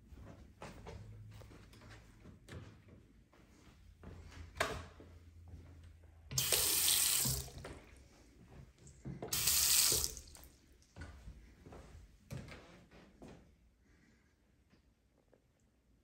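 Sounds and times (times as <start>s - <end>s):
faucet water splashing into basin: 6.3s - 7.7s, 9.3s - 10.5s.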